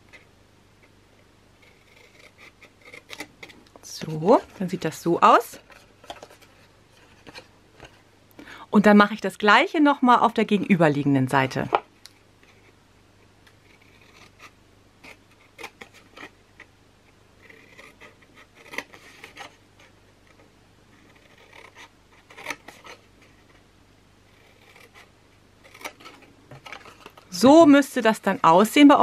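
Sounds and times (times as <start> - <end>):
scissors snipping paper: 17.6 - 19.6.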